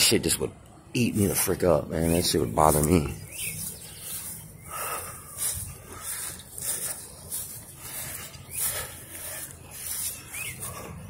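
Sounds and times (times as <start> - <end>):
footsteps swishing through grass: 2.4 - 11.0.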